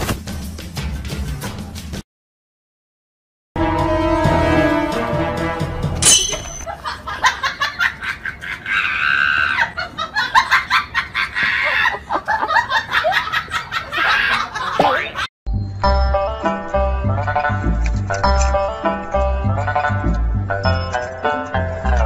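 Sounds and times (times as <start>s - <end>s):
person laughing: 6.7s - 15.3s.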